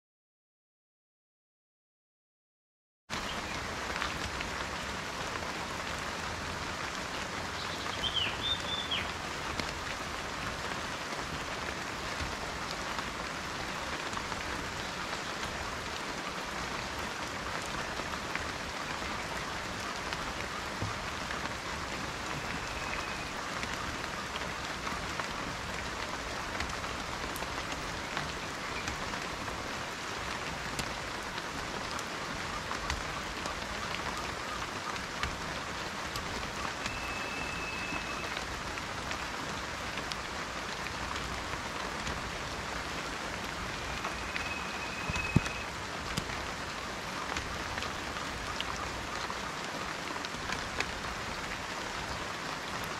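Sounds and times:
rain on leafy foliage: 0:03.1 - 0:52.9
bird chirp: 0:07.6 - 0:09.1.

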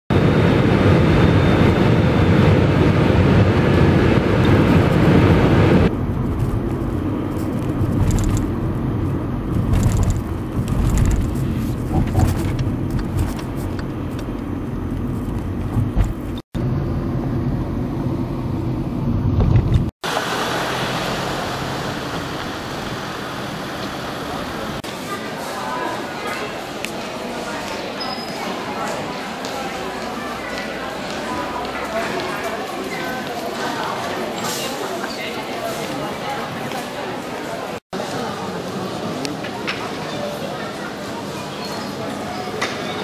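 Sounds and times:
jet engine cabin noise: 0:00.1 - 0:24.9
outdoor street ambience: 0:00.1 - 0:43.0
car driving rumble from inside: 0:05.9 - 0:16.4.

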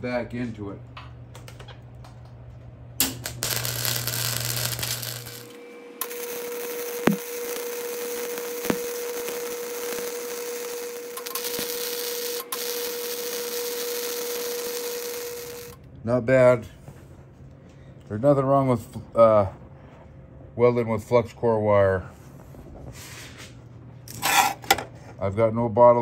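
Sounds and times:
steady tone: 0:03.0 - 0:15.8
welding arc sizzling: 0:03.0 - 0:15.8, 0:22.4 - 0:24.8.

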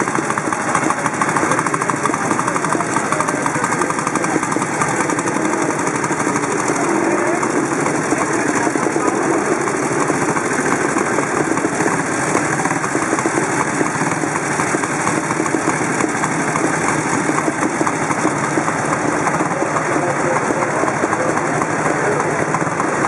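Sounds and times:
motorcycle engines idling: 0:00.0 - 0:23.0.

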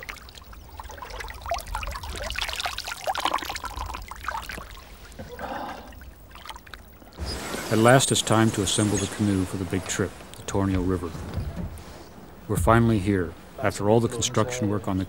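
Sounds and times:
water trickling through fingers: 0:00.0 - 0:05.2.

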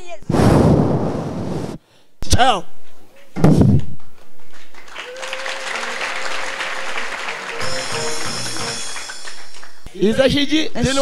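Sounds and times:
congregation applauding: 0:04.4 - 0:09.9.

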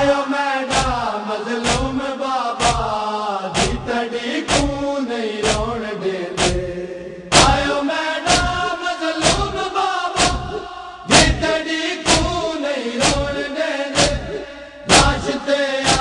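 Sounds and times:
men chanting in unison: 0:00.0 - 0:16.0
chest-beating slaps: 0:00.7 - 0:01.0, 0:01.6 - 0:02.0, 0:02.6 - 0:02.9, 0:03.6 - 0:03.9, 0:04.5 - 0:04.8, 0:05.4 - 0:05.7, 0:06.4 - 0:06.7, 0:07.3 - 0:07.7, 0:08.3 - 0:16.0.

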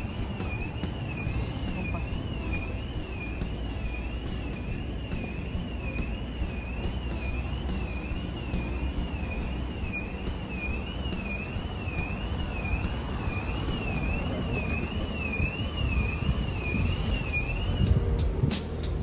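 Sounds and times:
warbling electronic alarm tone: 0:00.0 - 0:18.0
low rumble of wind or traffic: 0:00.0 - 0:19.0.

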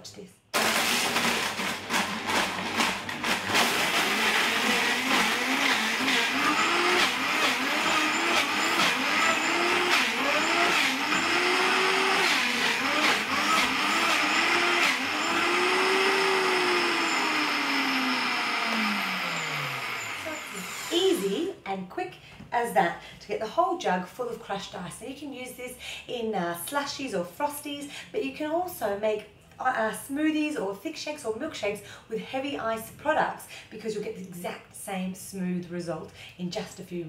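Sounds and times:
blender motor whining: 0:00.6 - 0:21.4.

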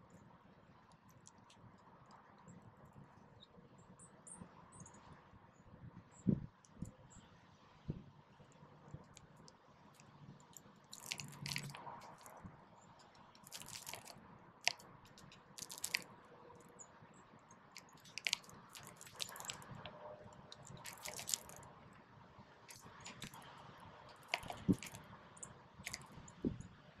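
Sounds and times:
sparrows cracking seed: 0:09.0 - 0:12.4, 0:13.0 - 0:16.7, 0:17.5 - 0:21.7, 0:22.7 - 0:26.5.

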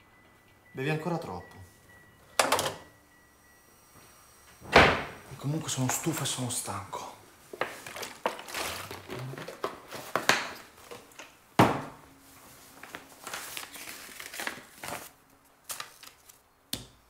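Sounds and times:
plastic bottle crinkling: 0:07.6 - 0:11.3.

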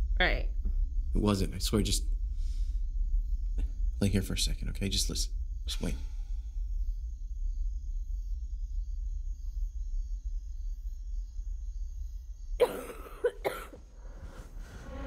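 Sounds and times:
low steady drone: 0:00.0 - 0:15.0
person coughing: 0:12.6 - 0:13.8.

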